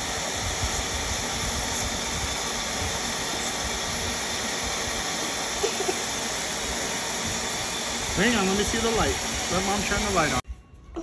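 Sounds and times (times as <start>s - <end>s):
vacuum cleaner whining: 0.0s - 10.4s.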